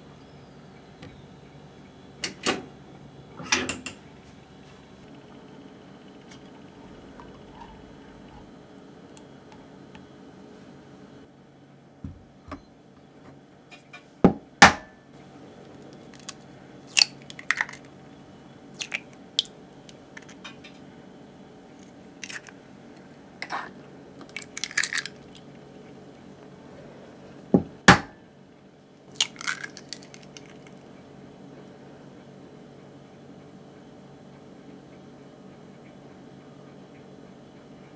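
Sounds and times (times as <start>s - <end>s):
steady low hum: 0.0s - 37.9s
eggshell crackling apart: 16.0s - 17.9s, 18.8s - 20.4s, 21.8s - 22.6s, 24.2s - 25.5s, 29.1s - 30.8s.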